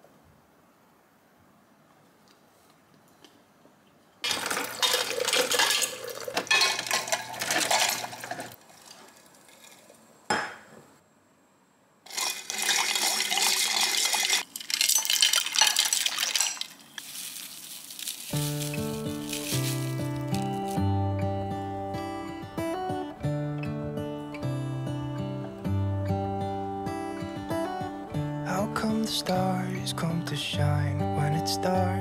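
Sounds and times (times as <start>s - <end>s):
ice cubes clinking in pitcher: 4.2s - 10.0s, 12.1s - 20.8s.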